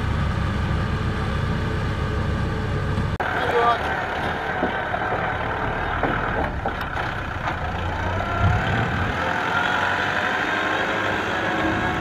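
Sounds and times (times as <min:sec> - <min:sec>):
tractor diesel engine running: 0:00.0 - 0:09.9.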